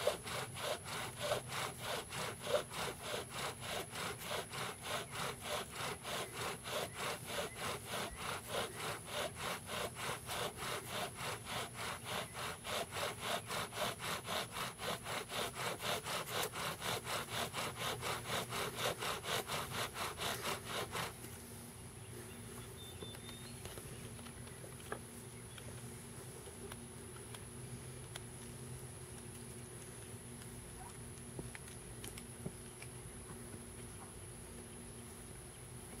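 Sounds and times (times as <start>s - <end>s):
bow drill spindle grinding wood: 0.0s - 21.2s.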